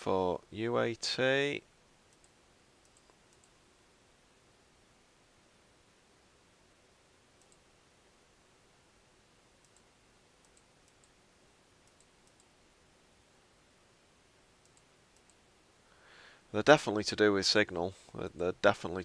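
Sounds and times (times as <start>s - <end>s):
computer mouse clicks: 2.1s - 3.6s, 7.4s - 7.6s, 9.6s - 11.2s, 11.8s - 12.5s, 14.6s - 15.4s.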